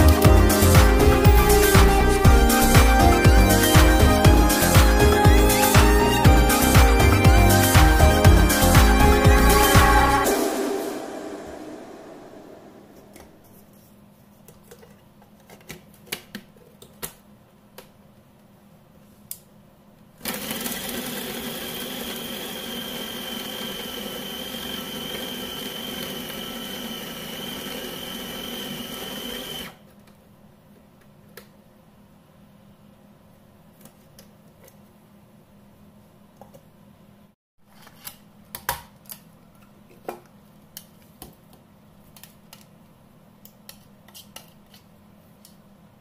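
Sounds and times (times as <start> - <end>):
food processor motor whining: 20.2 - 29.8.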